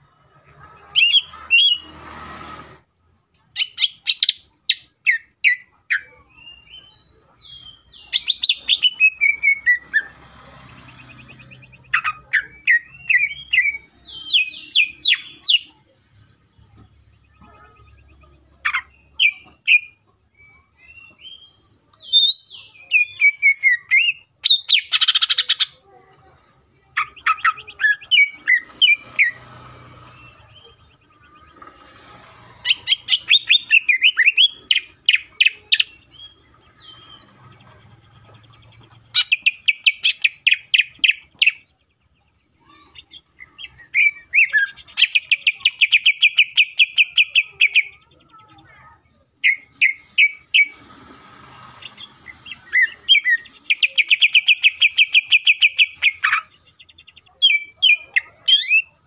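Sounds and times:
bird singing rapid trills: 6.3s - 15.8s.

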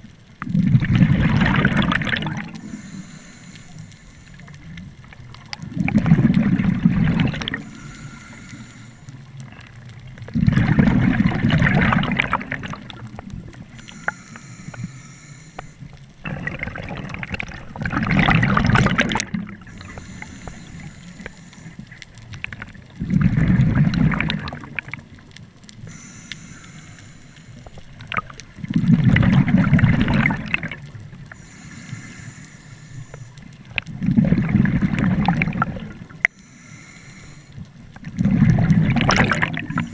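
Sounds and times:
exhaled air bubbling underwater: 0.0s - 39.9s
regulator inhalation hiss: 2.4s - 4.7s, 7.4s - 9.4s, 13.7s - 16.0s, 19.7s - 21.9s, 25.8s - 27.9s, 31.3s - 33.4s, 36.3s - 37.6s.

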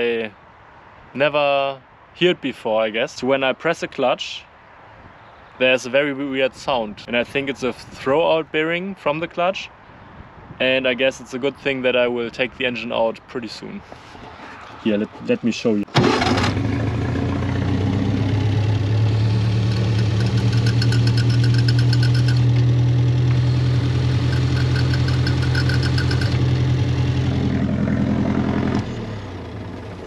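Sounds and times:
car engine idling: 16.0s - 30.0s
clutch clattering: 19.6s - 23.4s, 24.1s - 26.4s.

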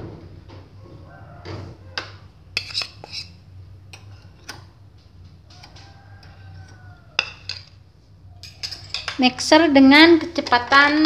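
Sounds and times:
metal spoon tapping bowl and beaters: 2.0s - 3.3s, 8.4s - 11.0s.

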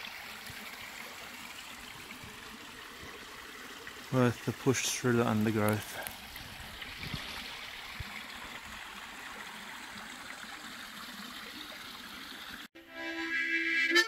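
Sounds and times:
creek water running over rocks: 0.0s - 12.7s
music with reedy held notes: 12.8s - 14.0s.

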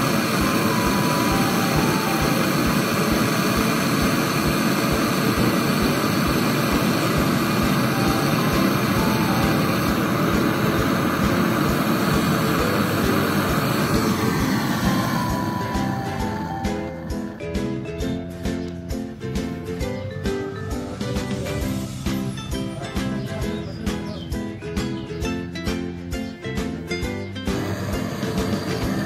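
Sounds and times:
gas torch hissing: 0.0s - 19.9s, 27.4s - 29.0s.

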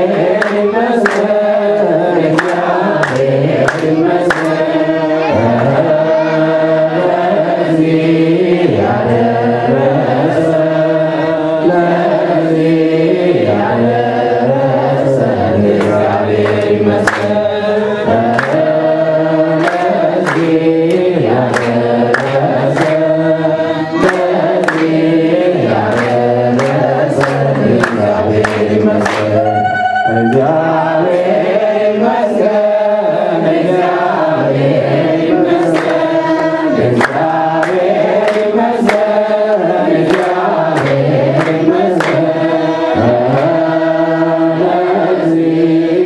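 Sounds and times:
steady hand-clapping: 0.0s - 5.8s, 14.8s - 32.6s, 33.5s - 45.7s
group chanting a hymn: 0.0s - 46.0s
priest singing into microphone: 0.0s - 46.0s.

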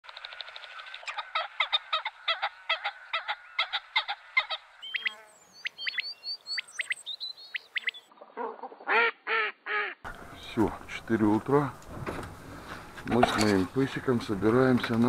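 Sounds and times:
waterfowl honking: 0.3s - 5.2s, 6.6s - 10.5s
high whistled chirps: 4.8s - 8.1s.

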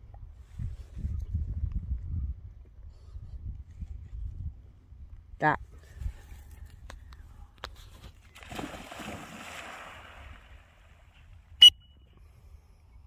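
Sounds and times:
dog splashing into water: 8.4s - 11.0s
water churning: 8.4s - 11.1s.

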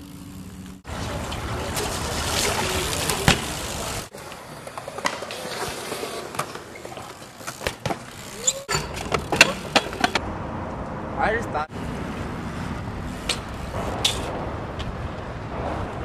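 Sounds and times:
bike tyres rolling on concrete: 0.0s - 10.2s, 11.7s - 16.0s
bike landing knocks and clacks: 1.0s - 4.1s, 4.7s - 10.2s, 13.2s - 16.0s.

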